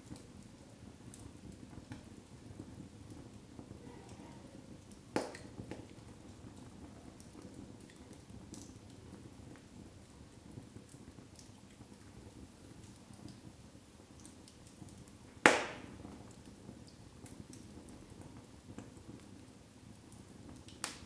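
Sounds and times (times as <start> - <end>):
faint fire crackles: 0.0 - 21.0
low rush of flame: 0.0 - 21.0
loud sharp pop: 15.4 - 16.0.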